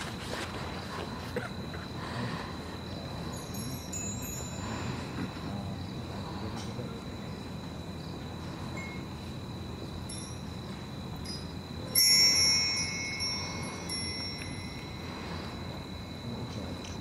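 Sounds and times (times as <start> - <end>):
steady high-pitched tone: 2.3 - 17.0
faint tinkles: 2.8 - 17.0
metal chime ringing: 3.3 - 5.2, 10.1 - 16.2.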